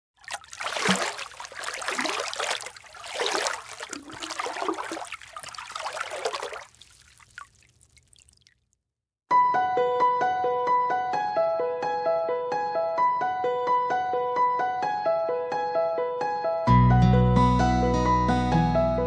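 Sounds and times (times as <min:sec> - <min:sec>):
water splashing and trickling: 0:00.2 - 0:08.8.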